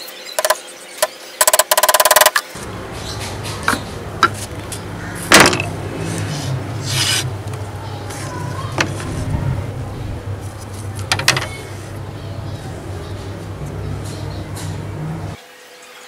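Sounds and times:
wooden strips squeaking: 0.4 - 0.6, 1.4 - 15.4
steady low hum: 2.6 - 15.4.

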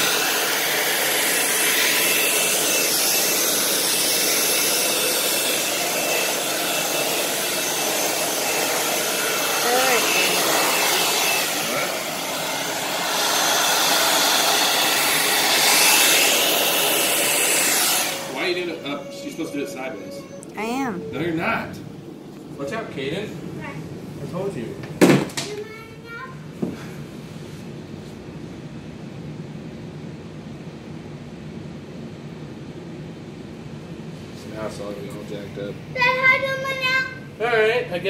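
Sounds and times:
hair dryer running with whine: 0.0 - 20.1.

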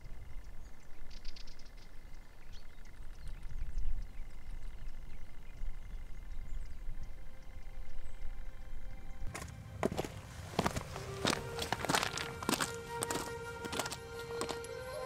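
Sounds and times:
bird chirps: 0.0 - 8.6
wind rumbling on microphone: 0.0 - 9.2.

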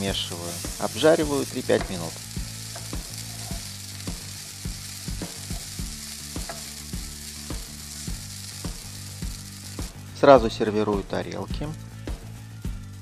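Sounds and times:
food sizzling in a frying pan: 0.0 - 13.0
wooden spatula knocking on pan: 1.7 - 2.0, 6.4 - 6.7.

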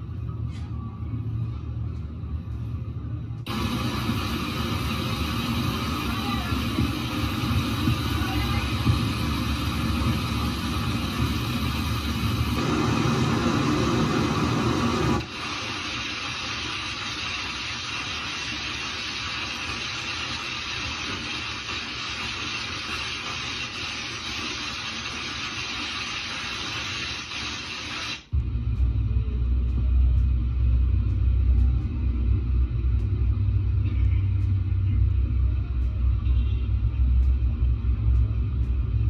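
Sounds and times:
deep rumble: 0.0 - 15.2, 28.3 - 39.0
heavy rain and hail hissing: 3.5 - 28.3.

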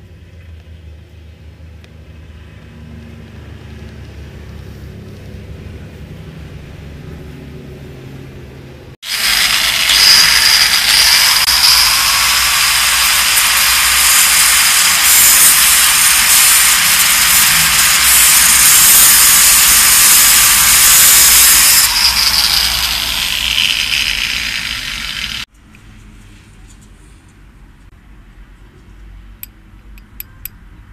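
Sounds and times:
angle grinder cutting steel rod: 9.0 - 25.5.

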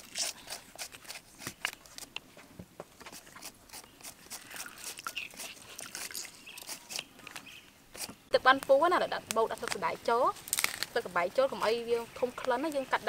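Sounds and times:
citrus press clicks and crunches: 10.4 - 11.0.

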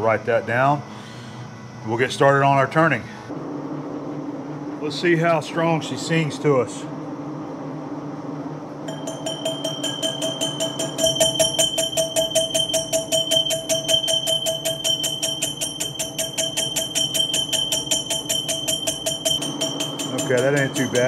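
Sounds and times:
lathe humming: 8.8 - 21.0
metal ringing while cutting: 8.9 - 21.0.

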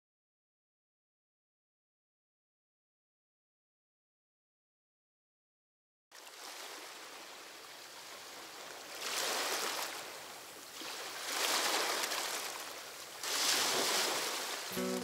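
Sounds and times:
ocean surf waves: 6.2 - 15.0.

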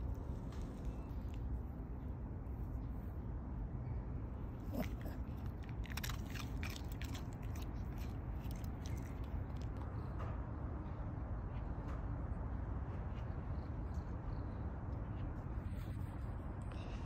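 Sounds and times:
dog crunching hard biscuit: 4.7 - 9.8.

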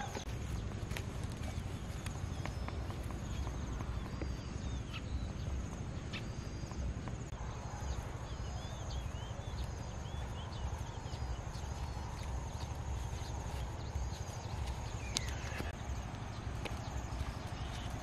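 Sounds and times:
bird chirping: 0.0 - 18.0
footsteps in grass: 0.0 - 18.0.

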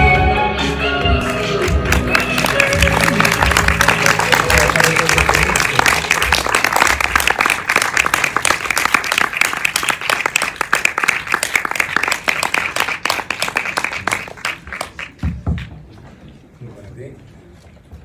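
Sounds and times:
audience applauding: 1.2 - 15.2.

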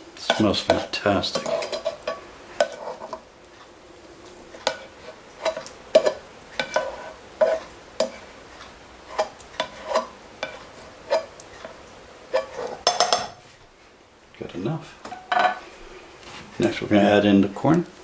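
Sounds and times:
spoon scraping and knocking pan: 0.2 - 3.2, 4.5 - 13.5, 15.0 - 15.6.

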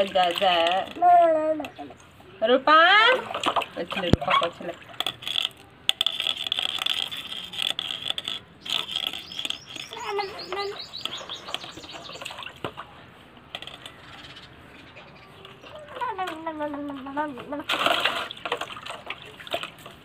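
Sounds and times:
water sloshing in tub: 0.0 - 5.8, 8.4 - 20.0
bird trilling: 8.6 - 12.5, 13.8 - 16.0.

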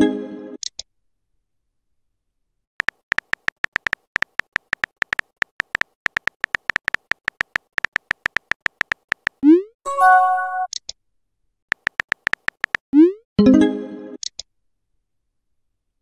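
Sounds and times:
phone keyboard typing clicks: 2.8 - 9.4, 11.7 - 12.9.

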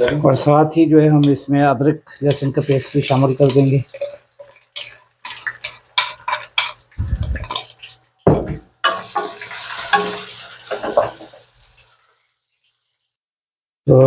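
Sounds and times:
oil sizzling: 1.1 - 13.2
wooden spatula scraping a pot: 2.0 - 8.0.

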